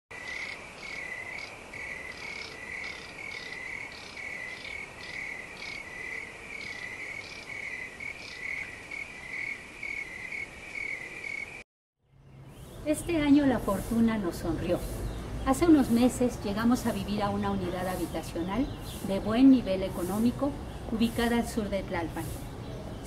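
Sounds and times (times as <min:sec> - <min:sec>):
crickets chirping: 0:00.2 - 0:11.6
insects chirping high: 0:00.2 - 0:11.6.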